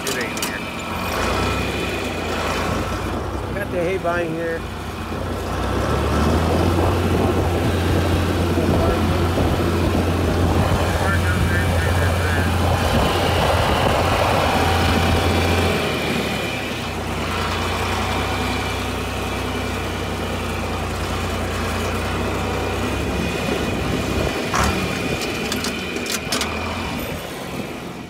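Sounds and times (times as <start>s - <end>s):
sharp clicks and knocks: 0.0s - 0.9s, 24.5s - 26.6s
tractor engine running: 0.0s - 28.0s.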